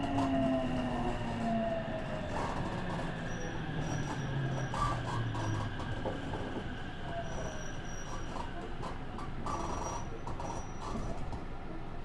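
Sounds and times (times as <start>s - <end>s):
train running rumble: 0.0s - 12.0s.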